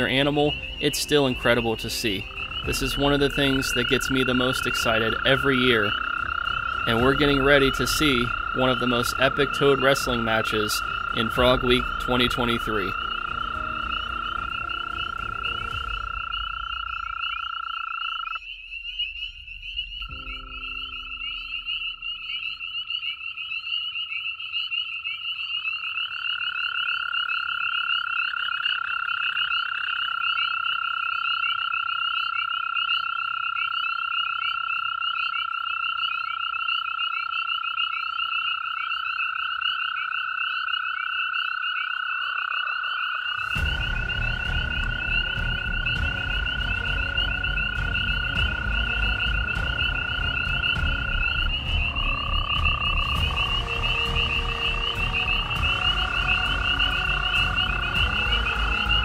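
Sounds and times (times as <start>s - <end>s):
high pulsing chorus: 0.0s - 23.3s, 43.2s - 59.0s
toads trilling: 0.0s - 59.0s.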